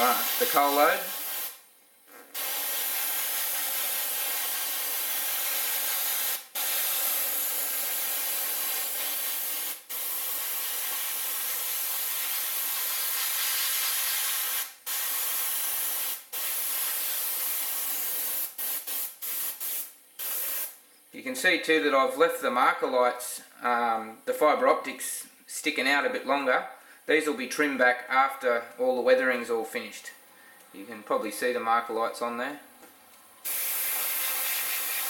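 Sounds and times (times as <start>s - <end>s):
airbrush spraying hiss: 0.0s - 1.6s, 2.3s - 20.8s, 33.4s - 35.0s.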